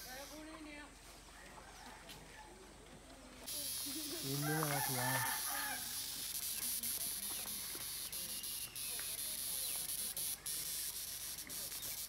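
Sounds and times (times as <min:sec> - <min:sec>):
cicadas buzzing: 0:00.0 - 0:00.9, 0:03.4 - 0:12.0.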